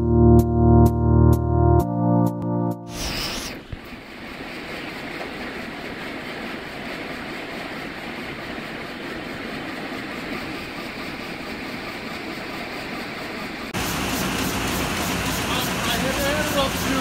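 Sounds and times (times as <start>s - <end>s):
printing press running: 13.1s - 17.0s.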